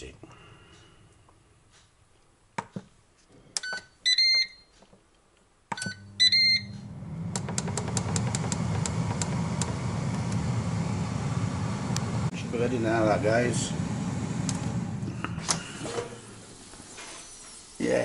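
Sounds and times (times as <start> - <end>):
control panel beeping: 5.7 - 9.7
air fryer fan whooshing: 6.0 - 18.0.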